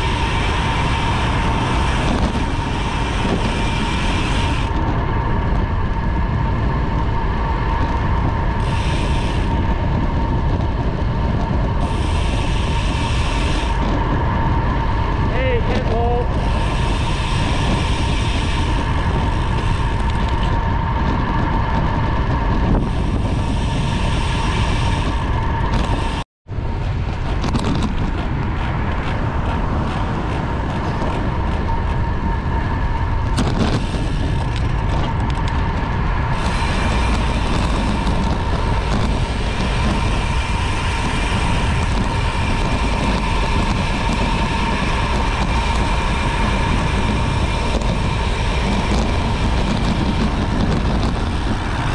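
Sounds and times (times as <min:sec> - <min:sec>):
constant whine: 0:00.0 - 0:51.9
wind rushing over microphone: 0:00.0 - 0:51.9.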